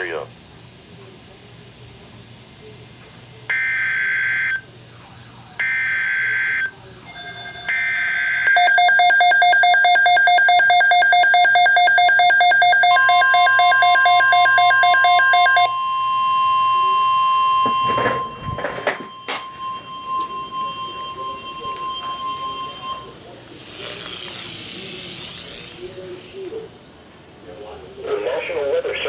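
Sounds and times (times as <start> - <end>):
rapid pulsing alarm beep: 3.5 - 4.7, 5.6 - 23.4
long steady attention tone: 3.5 - 26.7.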